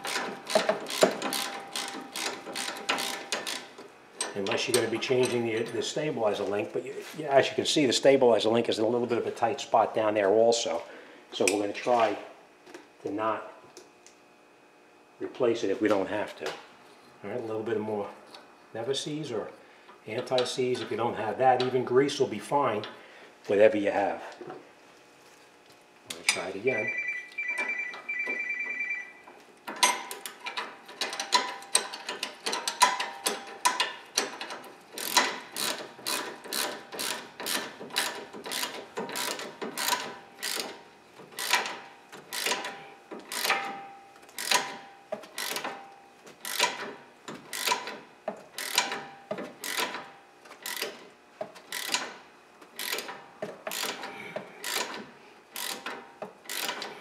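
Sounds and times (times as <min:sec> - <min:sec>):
ratchet wrench clicking: 0:00.0 - 0:03.7, 0:29.8 - 0:40.8, 0:41.4 - 0:43.7, 0:44.4 - 0:45.7, 0:46.4 - 0:46.9, 0:47.5 - 0:48.0, 0:48.6 - 0:49.0, 0:49.6 - 0:50.0, 0:50.6 - 0:51.0, 0:51.7 - 0:52.1, 0:52.8 - 0:56.9
high ringing tone: 0:26.6 - 0:29.3.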